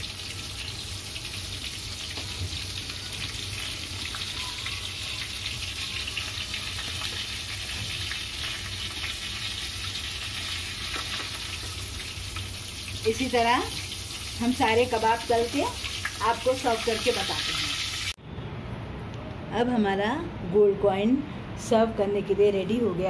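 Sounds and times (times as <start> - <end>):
patties deep-frying in hot oil: 0.0 - 18.2.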